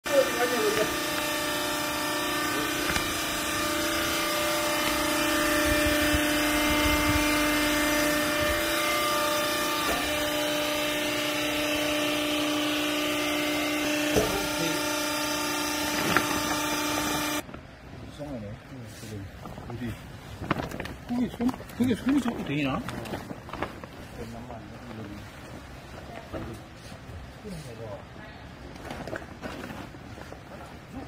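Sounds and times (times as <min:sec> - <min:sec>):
electric motor and pump humming: 0:00.0 - 0:17.7.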